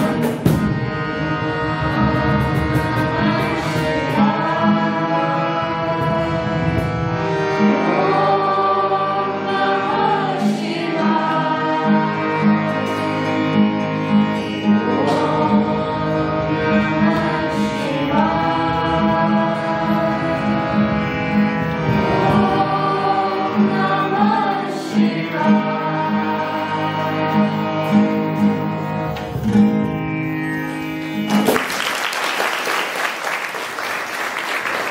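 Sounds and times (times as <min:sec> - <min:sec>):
children singing in unison: 0:00.0 - 0:29.1
strummed acoustic guitar: 0:00.0 - 0:31.7
harmonium chords: 0:00.0 - 0:34.9
applause: 0:31.3 - 0:34.9.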